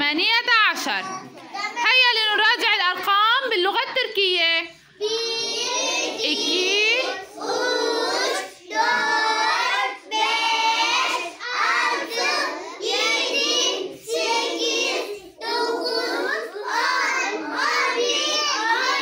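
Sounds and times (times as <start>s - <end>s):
children chanting numbers in unison: 4.9s - 19.0s.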